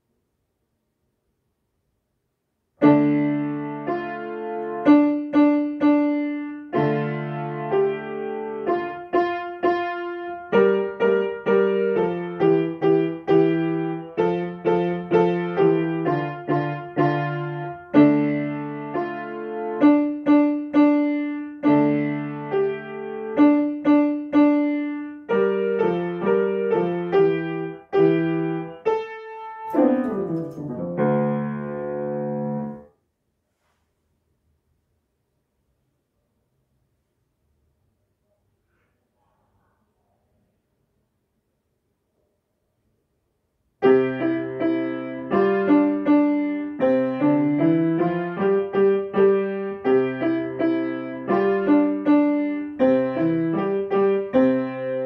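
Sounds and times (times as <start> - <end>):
grand piano playing: 2.8 - 32.9, 43.8 - 55.0.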